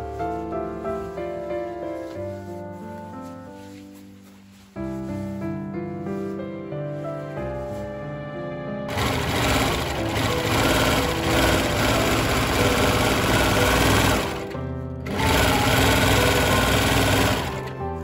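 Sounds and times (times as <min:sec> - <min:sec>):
background music: 0:00.0 - 0:18.0
sewing machine stitching: 0:08.9 - 0:17.8.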